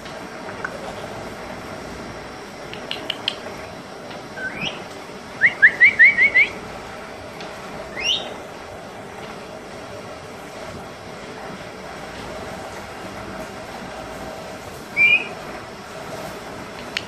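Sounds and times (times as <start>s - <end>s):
parrot clicks: 2.7s - 3.4s
parrot whistling: 4.4s - 4.8s, 5.4s - 6.6s, 7.9s - 8.4s, 14.9s - 15.4s.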